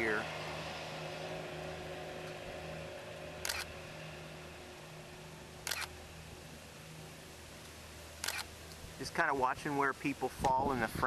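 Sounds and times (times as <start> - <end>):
camera shutter clacking: 3.4 - 3.7, 5.6 - 5.9, 8.2 - 8.5.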